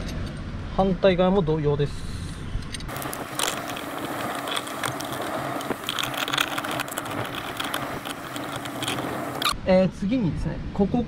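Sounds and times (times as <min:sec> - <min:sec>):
rapid mechanical clicking: 0:02.9 - 0:09.6.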